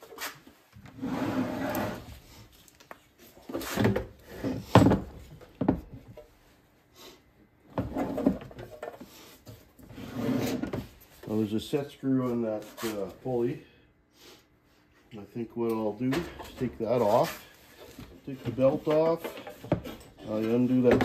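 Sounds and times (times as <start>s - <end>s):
cover scraping and rubbing: 0.2s - 2.3s, 9.8s - 11.0s.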